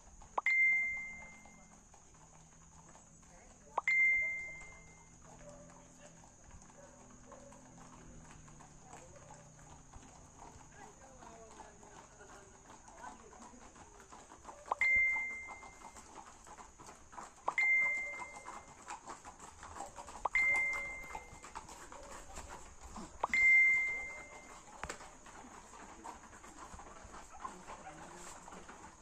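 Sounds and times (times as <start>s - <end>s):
small bell ringing: 0.4s - 1.7s, 3.8s - 5.2s, 14.7s - 16.1s, 17.5s - 18.8s, 20.2s - 21.6s, 23.2s - 24.6s.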